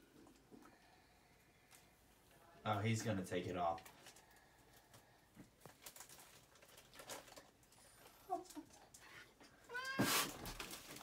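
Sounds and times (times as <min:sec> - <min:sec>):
rustling: 0:03.0 - 0:11.0
cat meowing: 0:09.7 - 0:10.3.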